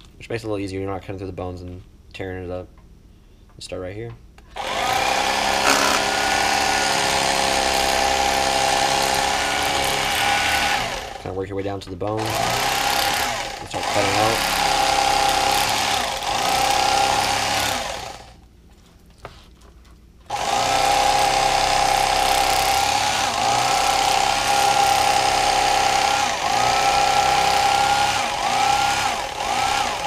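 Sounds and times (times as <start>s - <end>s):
electric fillet knife buzzing: 4.6s - 11.2s, 12.2s - 18.3s, 20.3s - 30.0s.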